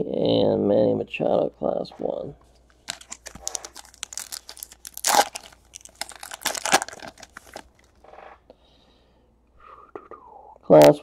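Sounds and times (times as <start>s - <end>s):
foil wrapper tearing and crinkling: 2.7s - 8.0s.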